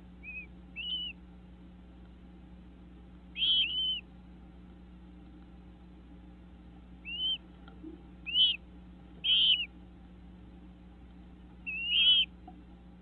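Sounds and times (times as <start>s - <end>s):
bird whistled calls: 0.2s - 1.2s, 3.3s - 4.0s, 7.0s - 7.4s, 8.2s - 8.6s, 9.2s - 9.7s, 11.6s - 12.3s.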